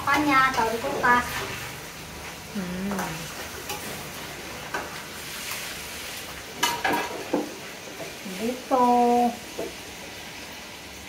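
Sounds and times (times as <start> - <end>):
pork sizzling in a wok: 0.0 - 11.0.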